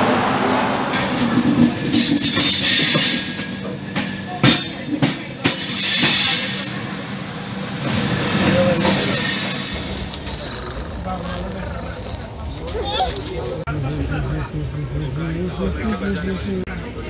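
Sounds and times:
wheels clacking on track: 0:00.0 - 0:07.1, 0:07.8 - 0:13.7
train wheels squealing: 0:01.9 - 0:03.8, 0:05.2 - 0:10.2.

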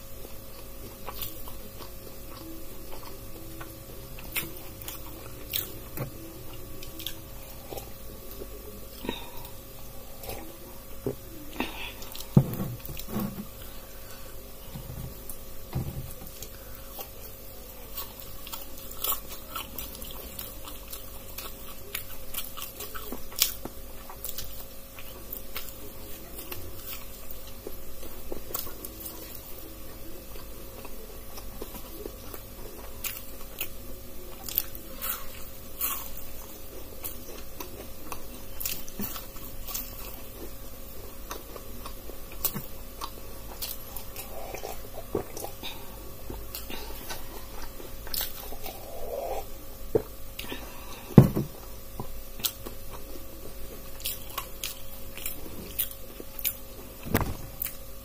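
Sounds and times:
crunchy bites and chewing: 0:16.2 - 0:29.7, 0:30.3 - 0:50.5, 0:52.0 - 0:57.9.

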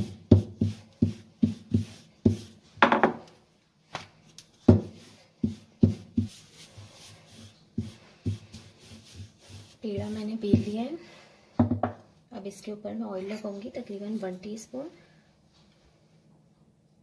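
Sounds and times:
rolling pin knocking on counter: 0:00.3 - 0:03.3, 0:04.7 - 0:06.4, 0:11.6 - 0:12.0.

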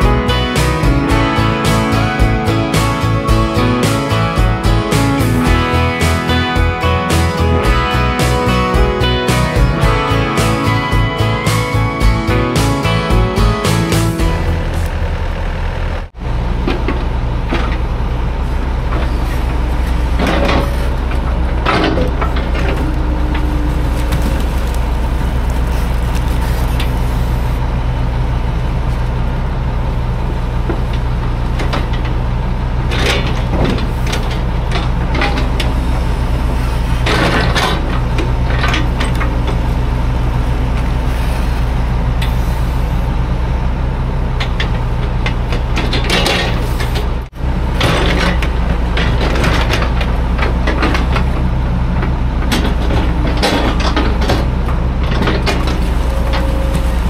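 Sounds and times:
diesel engine running: 0:00.0 - 0:57.0
sharp metal clanks and knocks: 0:44.4 - 0:47.1.

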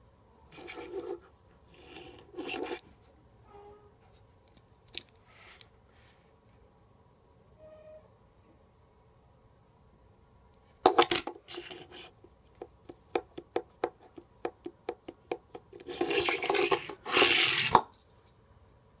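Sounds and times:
toy car wheels rolling: 0:00.5 - 0:02.8, 0:15.7 - 0:17.9.

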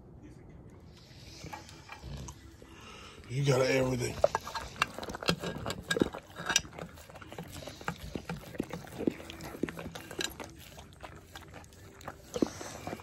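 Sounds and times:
dogs licking a plate: 0:03.4 - 0:13.0
tongue and teeth clicking on plate: 0:04.1 - 0:13.0.

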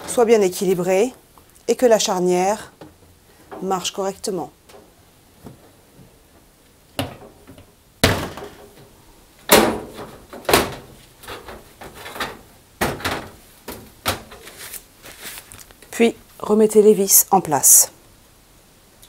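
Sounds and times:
knocks on sheet-metal casing: 0:08.0 - 0:08.7, 0:09.5 - 0:10.9.

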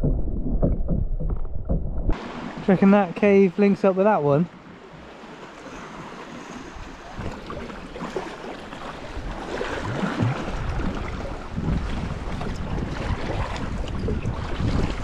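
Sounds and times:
water splashing around kayak: 0:02.1 - 0:15.0
wind on microphone: 0:06.0 - 0:15.0.

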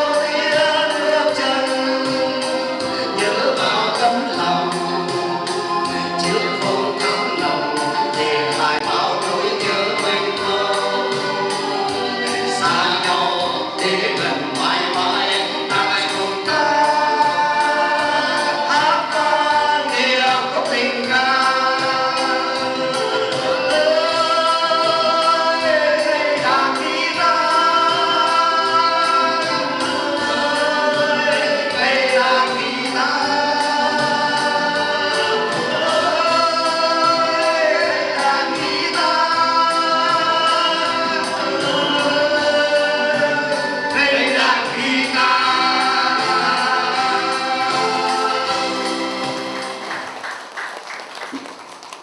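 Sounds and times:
men singing together: 0:00.0 - 0:49.8
acoustic guitar: 0:00.0 - 0:50.2.

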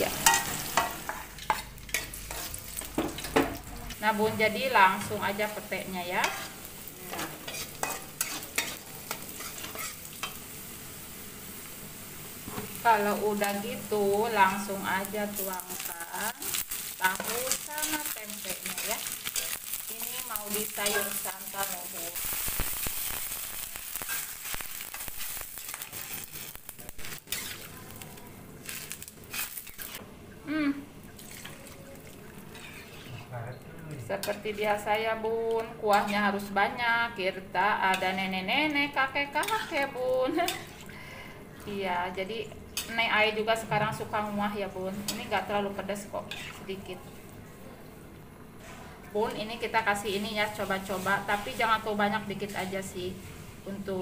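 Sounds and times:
metal spatula scraping a wok: 0:00.0 - 0:03.4, 0:06.0 - 0:10.4, 0:20.4 - 0:21.7, 0:24.0 - 0:27.9, 0:28.7 - 0:30.0, 0:32.5 - 0:33.4, 0:35.9 - 0:36.5, 0:39.3 - 0:40.9, 0:46.1 - 0:47.0
frying sizzle: 0:00.0 - 0:54.0.

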